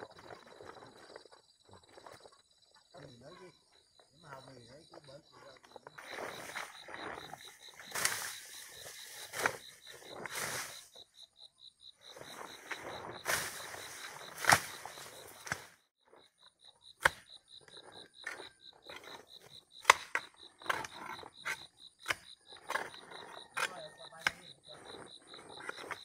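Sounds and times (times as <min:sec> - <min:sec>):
insect chirping: 0:00.0 - 0:26.0
digging tool scraping soil: 0:06.0 - 0:11.0, 0:12.1 - 0:15.8, 0:18.2 - 0:26.0.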